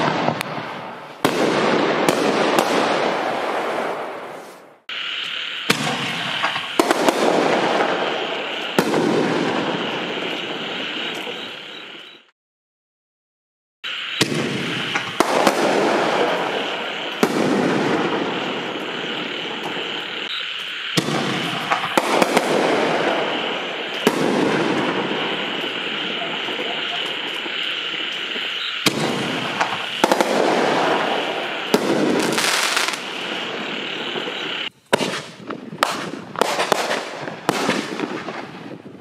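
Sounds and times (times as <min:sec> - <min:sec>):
firework aerial bursts cracking: 0:00.0 - 0:12.0, 0:13.9 - 0:39.0
frogs chorus: 0:09.7 - 0:12.3, 0:18.0 - 0:31.8, 0:33.0 - 0:34.7.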